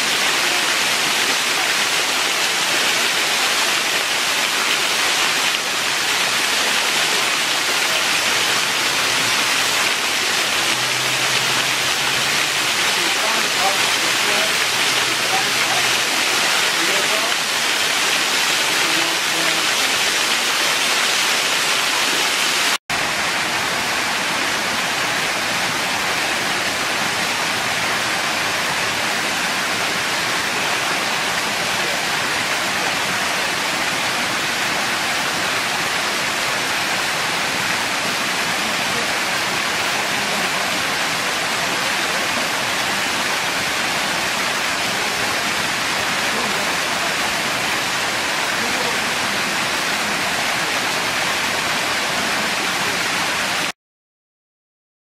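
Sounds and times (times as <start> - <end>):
waterfall rushing: 0.0 - 53.7.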